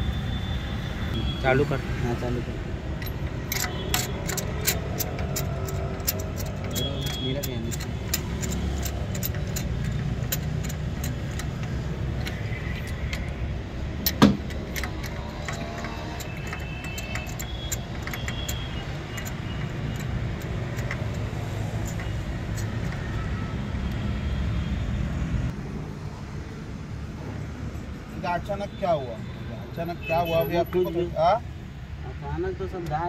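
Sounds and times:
metal tools clicking: 2.9 - 23.4.

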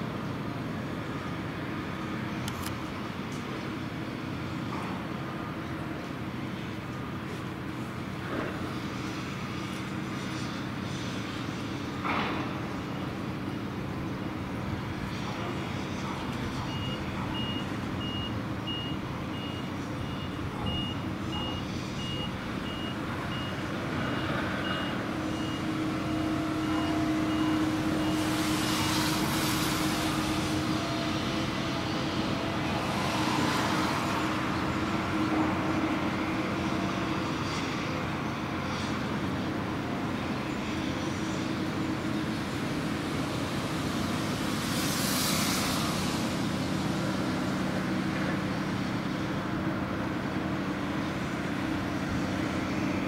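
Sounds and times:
diesel loader engine running: 0.0 - 44.6
reversing alarm beeping: 16.6 - 29.3.

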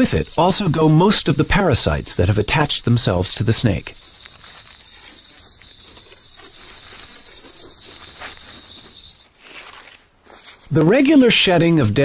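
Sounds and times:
insects trilling: 0.0 - 9.3.

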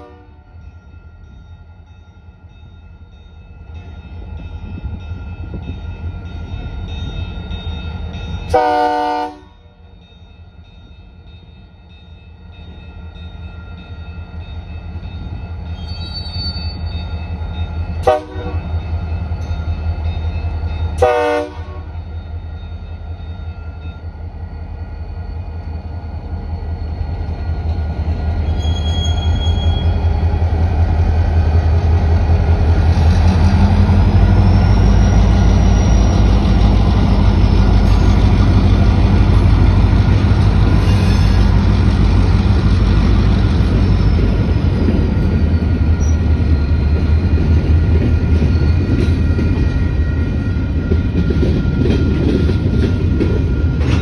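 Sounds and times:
locomotive horn toots: 0.0 - 0.4, 8.5 - 9.6, 18.0 - 18.7, 21.0 - 21.9
diesel locomotive engines rumbling: 0.0 - 54.0.

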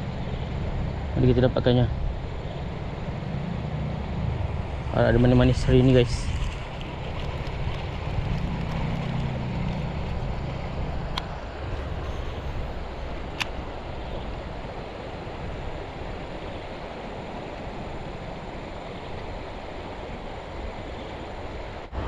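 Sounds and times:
sharp click: 13.3 - 13.6.

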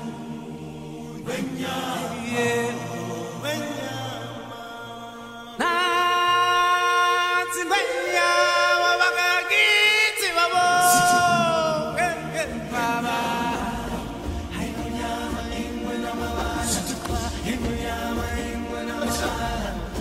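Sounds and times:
sung vocals with gliding notes: 0.0 - 20.0
low musical accompaniment: 11.4 - 20.0.

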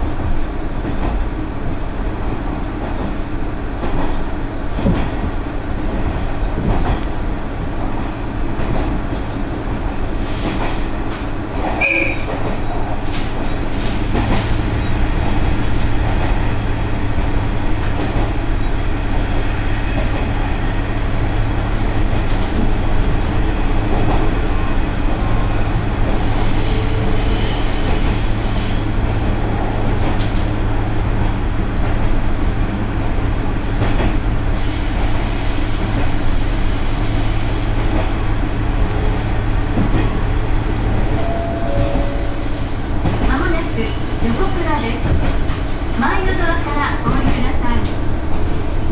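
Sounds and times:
train wheels rumbling on rails: 0.0 - 48.9
high-pitched wheel squeal: 11.8 - 12.3.

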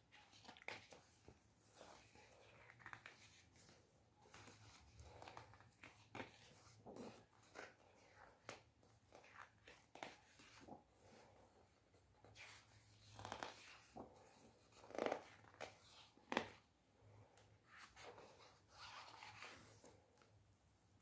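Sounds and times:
book pages turning: 0.2 - 16.7, 17.7 - 19.9.

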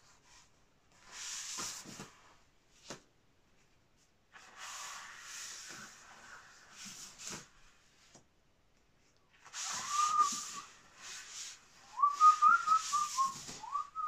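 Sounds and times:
paper sheets sliding and rustling: 0.3 - 3.0, 4.3 - 8.1, 9.3 - 13.8.

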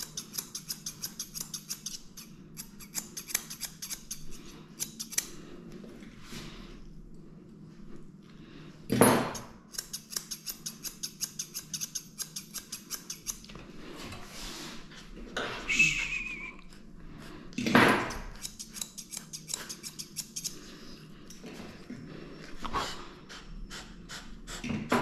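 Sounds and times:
scissors snipping fur: 0.0 - 5.4, 9.3 - 13.5, 18.0 - 20.7
brief high squeak: 15.6 - 16.6.

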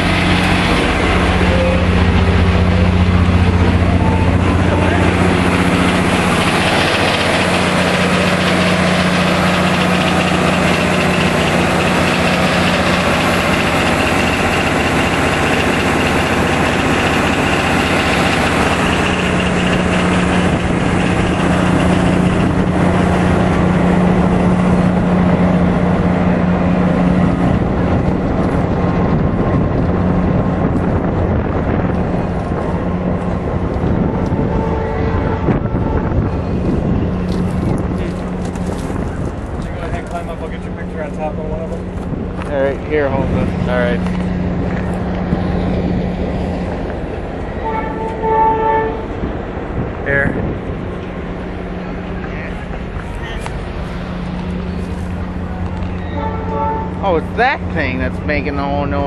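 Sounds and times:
machine low drone: 0.0 - 59.0.

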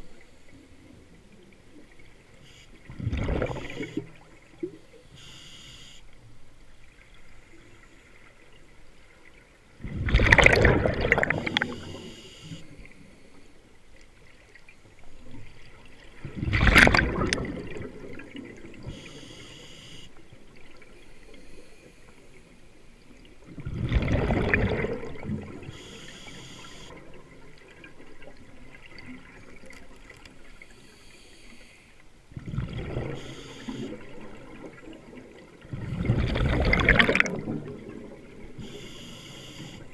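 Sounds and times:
exhaled bubbles rushing underwater: 0.0 - 5.0, 6.9 - 13.1, 15.0 - 19.3, 23.1 - 25.9, 32.3 - 39.9
regulator hiss: 18.9 - 20.1, 25.8 - 26.9, 33.2 - 33.9, 38.6 - 39.9.

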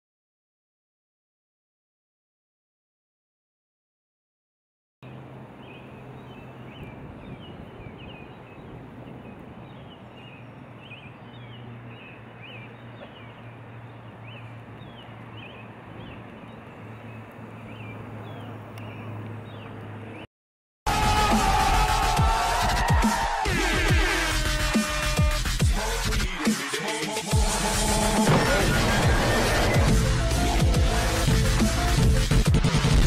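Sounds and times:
birds chirping: 5.0 - 20.3.

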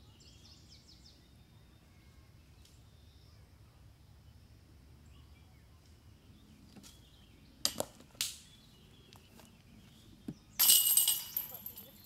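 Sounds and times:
faint woodland background: 0.0 - 12.0
disc clattering through trees: 6.6 - 12.0.

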